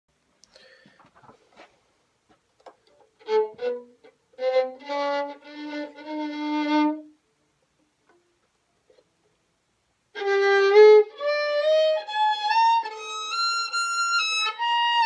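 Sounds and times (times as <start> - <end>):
solo violin playing: 3.2 - 7.2, 10.1 - 15.0.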